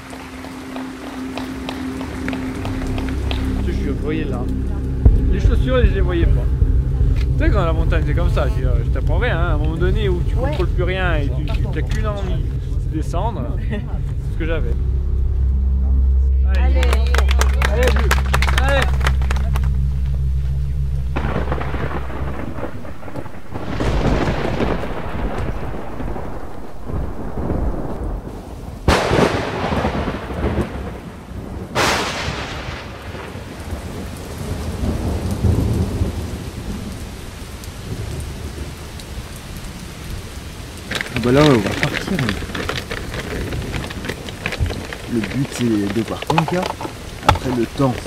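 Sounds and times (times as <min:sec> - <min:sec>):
steady rain: 0:00.0 - 0:48.0
low steady hum: 0:00.3 - 0:28.3
rolling thunder: 0:00.9 - 0:48.0
sharp thunder claps: 0:02.0 - 0:15.3, 0:16.8 - 0:38.8.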